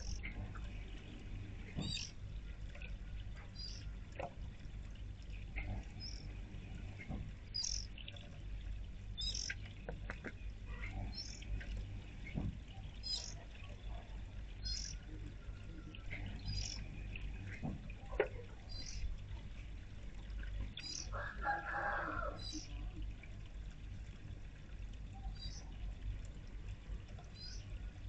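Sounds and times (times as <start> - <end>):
birds chirping: 0.0 - 0.3, 1.8 - 2.2, 3.4 - 3.9, 5.6 - 6.3, 7.5 - 8.2, 9.2 - 11.5, 12.8 - 13.4, 14.6 - 17.6, 18.6 - 19.1, 20.7 - 21.2, 25.2 - 25.7, 27.3 - 27.8
fountain trickling into basin: 0.0 - 28.0.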